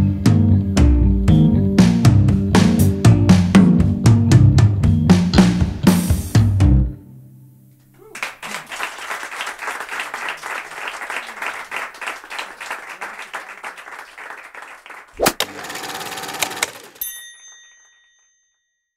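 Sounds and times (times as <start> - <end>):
drum notes: 0.8 - 6.9
small audience applauding: 8.0 - 17.0.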